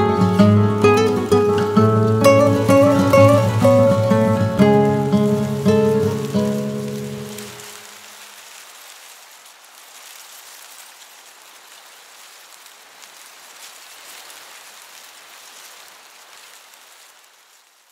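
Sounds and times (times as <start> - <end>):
faint crackles: 0.0 - 17.9
soft steady hiss: 0.0 - 17.9.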